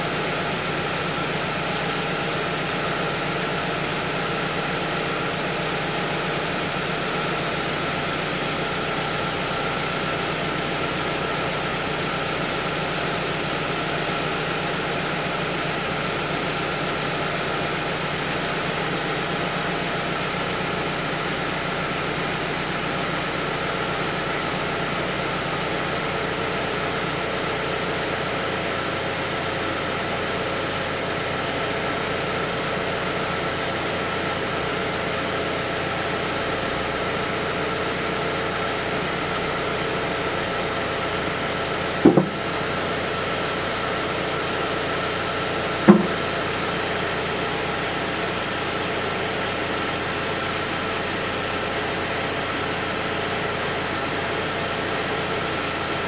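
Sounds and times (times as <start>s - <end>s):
car engine idling: 0.0s - 56.0s
sharp knocks: 42.0s - 42.4s, 45.9s - 46.3s.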